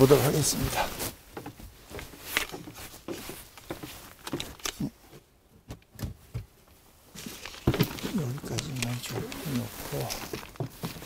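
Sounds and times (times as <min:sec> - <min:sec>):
extension cord and plug handled: 0:02.3 - 0:04.8, 0:07.2 - 0:11.0.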